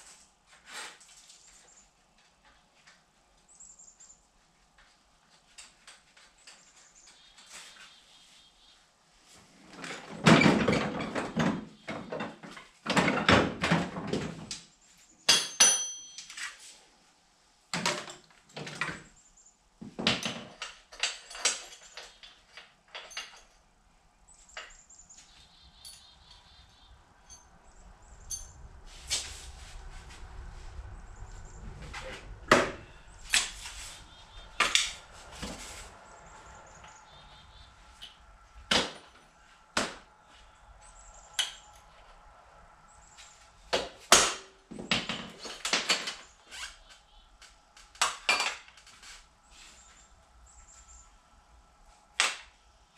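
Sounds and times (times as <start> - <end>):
metal tools clattering: 15.3 - 16.4, 20.1 - 23.6, 25.8 - 26.5, 28.2 - 28.6
metallic ring: 15.3 - 16.4, 25.8 - 26.6, 27.2 - 29.0.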